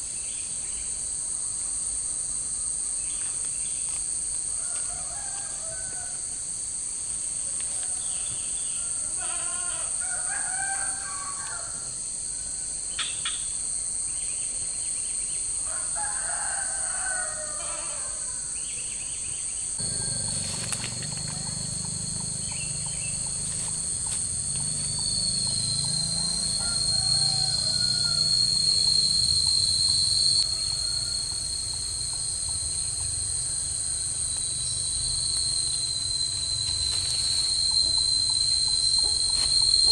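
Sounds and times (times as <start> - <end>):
insects droning: 0.0 - 39.9
rooster crowing: 4.5 - 6.4, 7.6 - 12.7, 15.6 - 18.6, 19.8 - 39.9
low rumbling noise: 19.8 - 39.8.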